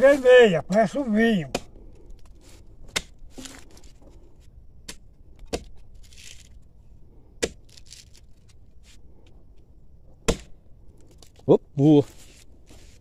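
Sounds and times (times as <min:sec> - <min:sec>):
axe chopping tree bark: 0:01.3 - 0:01.8, 0:02.8 - 0:03.6, 0:04.8 - 0:06.2, 0:07.4 - 0:08.1, 0:10.2 - 0:10.6.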